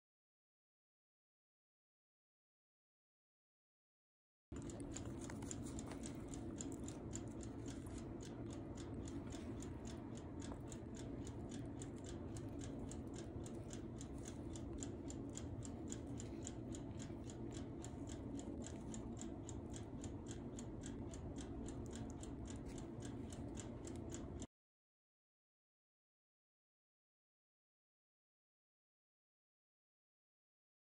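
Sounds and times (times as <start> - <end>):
steady low hum: 4.5 - 24.5
rapid even ticking: 4.6 - 24.5.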